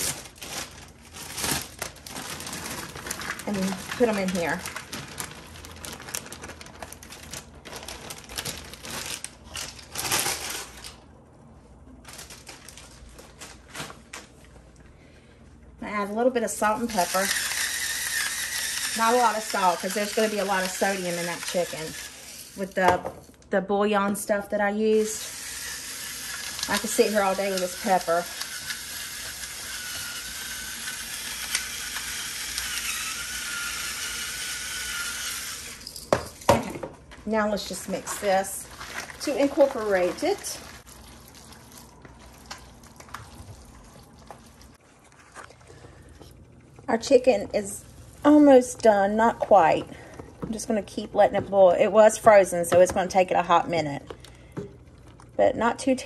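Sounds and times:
plastic bag crinkling: 0.0 - 11.1, 11.9 - 14.4, 16.8 - 23.4, 26.0 - 33.8, 35.2 - 46.9
electric pepper grinder: 16.6 - 23.0, 24.9 - 36.6, 37.4 - 40.6.

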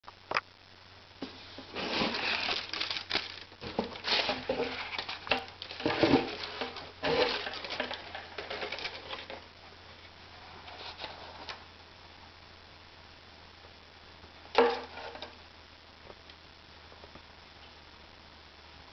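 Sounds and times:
cardboard box and paper rustling: 1.2 - 9.4.

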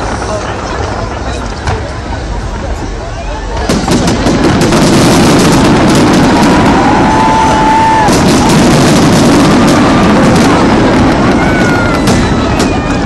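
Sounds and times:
fireworks bursting: 0.0 - 13.0
fireworks whistles: 3.5 - 13.0.

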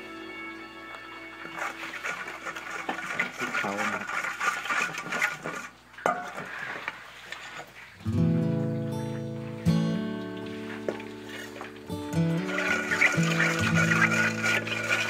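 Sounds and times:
utensil scraping metal wok: 1.5 - 7.7, 12.4 - 15.0.

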